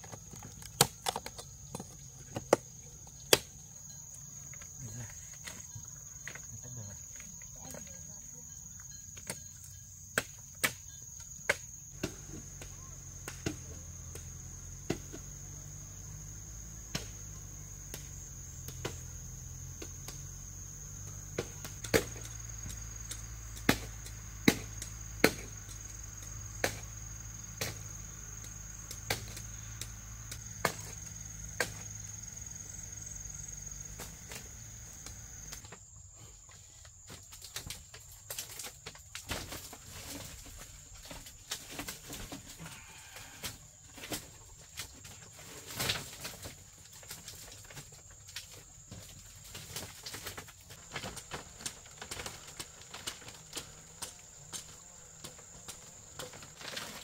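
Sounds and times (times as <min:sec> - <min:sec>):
bamboo being chopped: 0:00.0 - 0:03.6, 0:10.1 - 0:15.5, 0:16.8 - 0:32.1, 0:45.7 - 0:57.0
high insect drone: 0:00.0 - 0:57.0.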